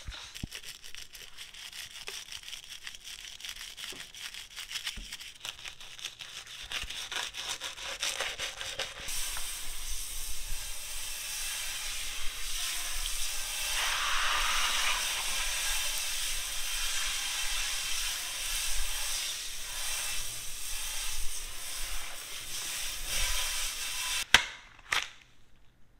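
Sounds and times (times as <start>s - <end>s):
scrub brush scraping a sink: 0.0s - 24.3s
sprayer water rinsing sink: 7.6s - 24.3s.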